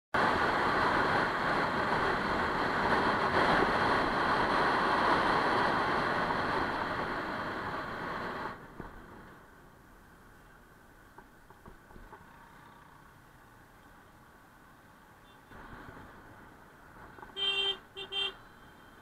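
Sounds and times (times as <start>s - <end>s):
wind rush on microphone: 0.2s - 9.1s
motorcycle road noise: 0.2s - 19.0s.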